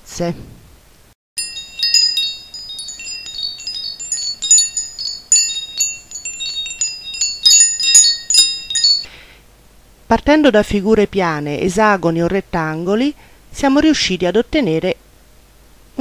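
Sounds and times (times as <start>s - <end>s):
wind chimes tinkling: 1.4s - 9.2s.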